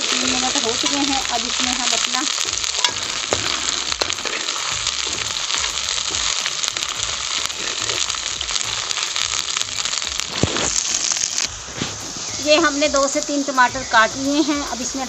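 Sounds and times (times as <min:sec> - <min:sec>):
metal spoon stirring: 0:00.0 - 0:11.4
onions sizzling in hot oil: 0:00.0 - 0:15.0.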